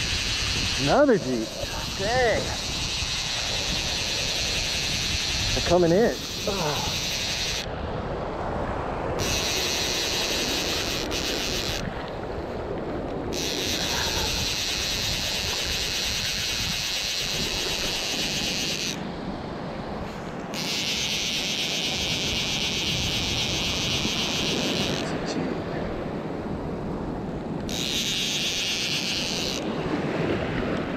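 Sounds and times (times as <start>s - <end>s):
waves washing on sand: 0.0s - 16.0s, 28.4s - 30.9s
wind buffeting microphone: 0.0s - 30.9s
steady high hiss: 9.2s - 11.9s.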